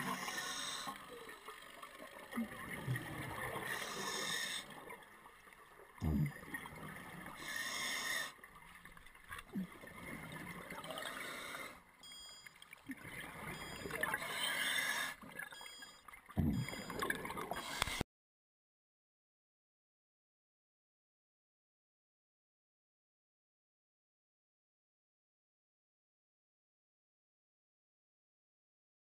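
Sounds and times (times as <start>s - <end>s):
muffled underwater exhaust bubbles: 0.0s - 4.9s, 5.9s - 7.5s, 15.2s - 18.0s.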